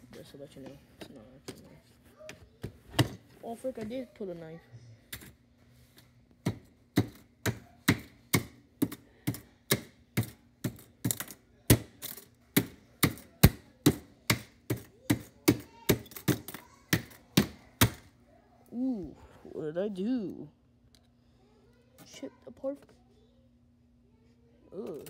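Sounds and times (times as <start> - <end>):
knife chopping on plastic: 6.4 - 18.1.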